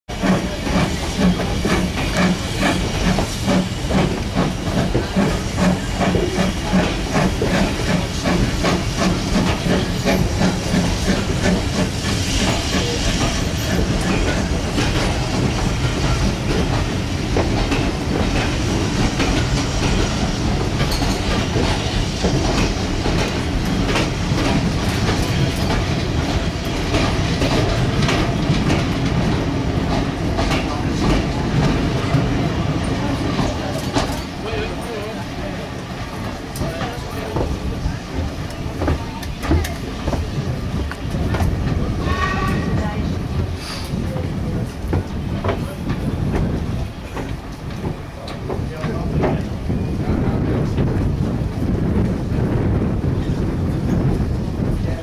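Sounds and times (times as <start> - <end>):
steam locomotive exhaust: 0.1 - 35.1, 35.7 - 45.2
train wheels clicking over rail joints: 0.1 - 55.0
steam hiss: 0.2 - 34.6, 39.8 - 45.2.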